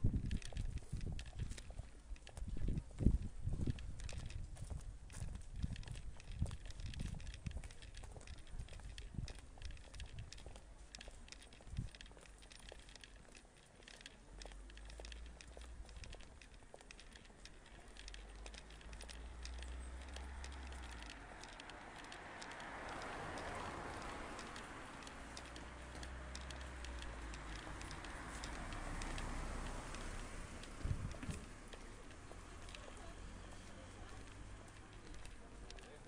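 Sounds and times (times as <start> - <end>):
wind on microphone: 0.0 - 10.4, 30.3 - 31.6
footsteps on paved road: 0.0 - 36.0.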